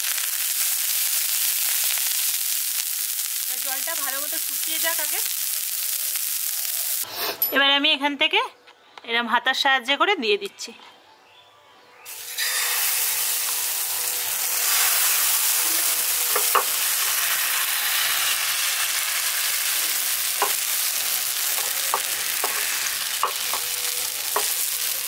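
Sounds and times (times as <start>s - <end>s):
batter sizzling on a hot pan: 0.0s - 7.1s, 12.1s - 25.0s.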